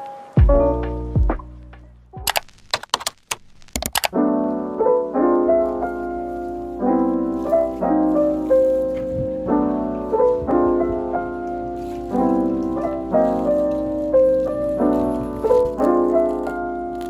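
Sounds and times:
gentle piano chords: 4.1 - 17.0.

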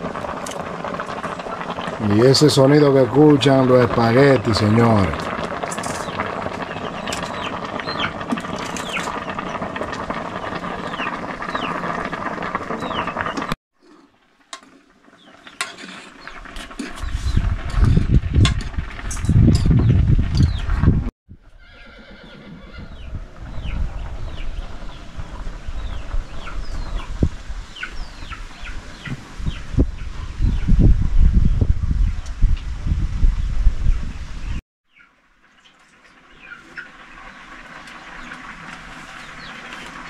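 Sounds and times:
water boiling in a pot: 0.0 - 20.4, 35.1 - 40.0.

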